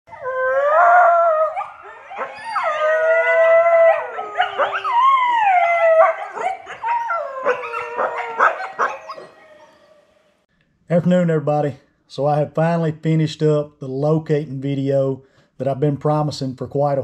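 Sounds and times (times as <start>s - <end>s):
coyotes howling: 0.1s - 10.1s
coyotes yipping and barking: 1.5s - 10.1s.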